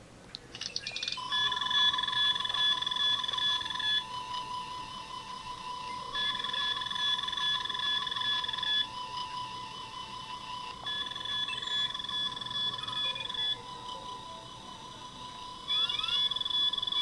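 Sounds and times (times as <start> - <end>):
fast warbling electronic beep: 0.7 - 4.0, 10.9 - 14.2, 15.7 - 17.0
higher bright beeping: 0.8 - 17.0.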